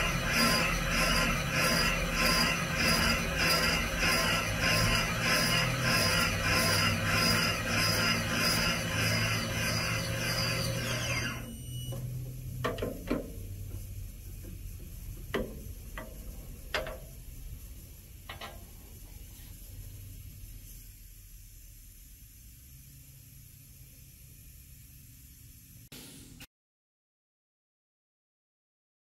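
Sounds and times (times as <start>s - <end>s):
valve seat cutter scraping metal: 0.0s - 17.2s
motor hum: 0.0s - 18.4s.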